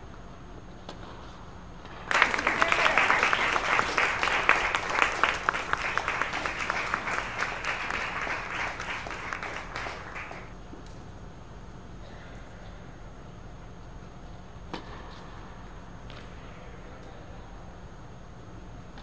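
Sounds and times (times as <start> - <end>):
crowd clapping: 1.8 - 10.5.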